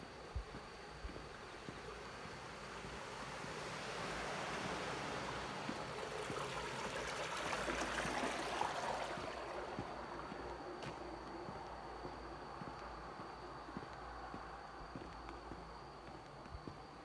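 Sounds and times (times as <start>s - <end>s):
flowing water: 0.0s - 12.6s
faint footsteps: 0.0s - 17.0s.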